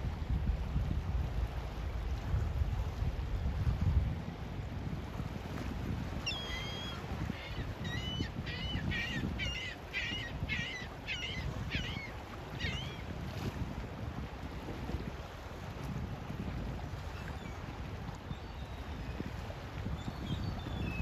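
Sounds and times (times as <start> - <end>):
wind rumbling on microphone: 0.0 - 21.0
bird calling: 6.3 - 13.0.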